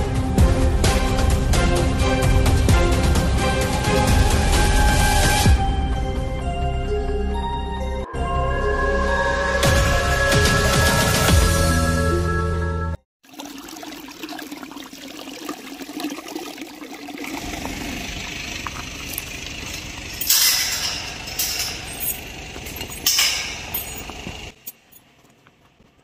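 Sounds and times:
gate latch and chain rattling: 19.2 - 25.0
metal gate clanks: 19.6 - 24.8.

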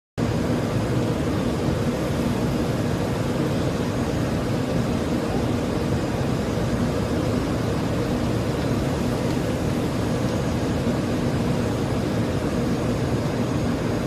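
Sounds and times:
airflow and jet engines rumbling: 0.2 - 14.0.

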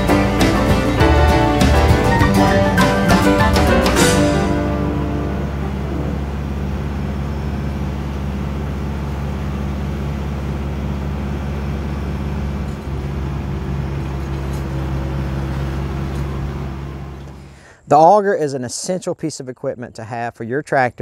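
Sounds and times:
tractor diesel engine running: 0.0 - 17.8
auger boring into ground: 4.2 - 17.6.

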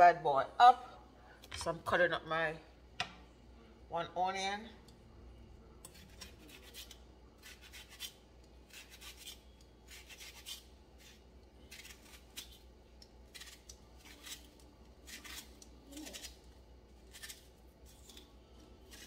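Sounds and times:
knife slicing onion: 5.8 - 19.0.

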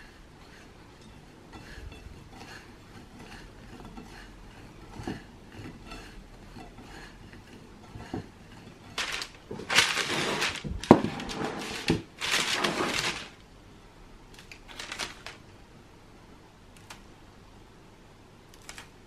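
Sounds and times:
parchment paper crinkling: 9.0 - 13.4, 14.4 - 15.4.

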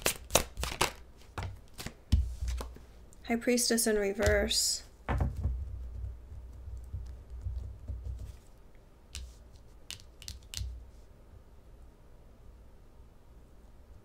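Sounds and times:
cards bumping and rustling: 0.0 - 2.8, 4.2 - 8.5, 9.1 - 10.8.

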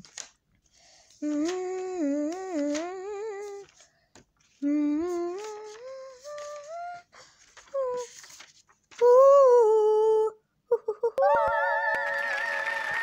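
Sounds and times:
child humming: 4.6 - 7.1.

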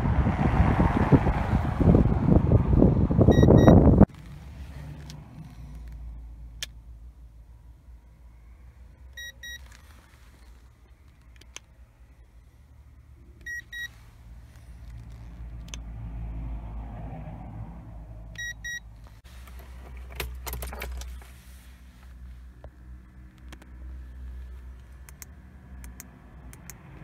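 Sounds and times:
thermometer double beep: 3.3 - 3.8, 18.4 - 18.8
car keys jangling and clicking: 19.5 - 21.3.

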